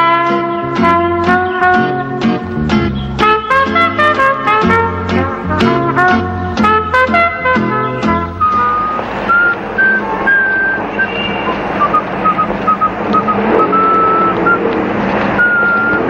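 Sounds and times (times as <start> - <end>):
street traffic noise: 0.0 - 16.0
person whistling a tune: 8.4 - 14.6, 15.4 - 16.0.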